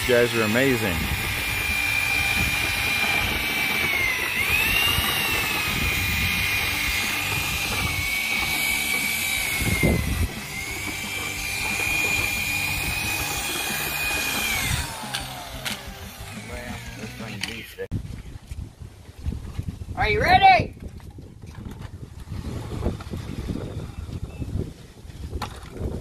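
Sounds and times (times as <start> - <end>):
drill mixing concrete: 0.0 - 17.9, 21.6 - 24.3.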